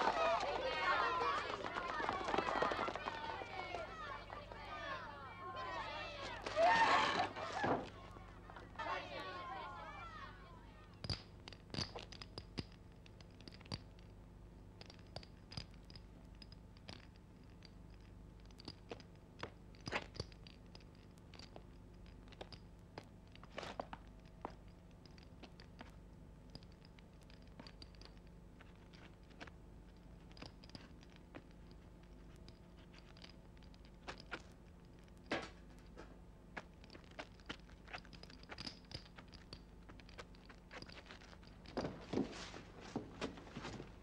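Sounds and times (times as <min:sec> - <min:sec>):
steady low hum: 0:00.0 - 0:44.0
knocks and scrapes on wooden ladder: 0:40.8 - 0:44.0.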